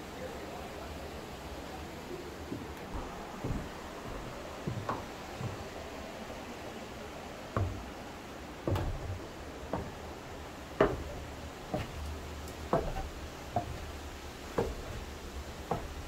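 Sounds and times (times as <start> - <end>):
footsteps on wooden stairs: 2.5 - 6.8, 7.4 - 16.0.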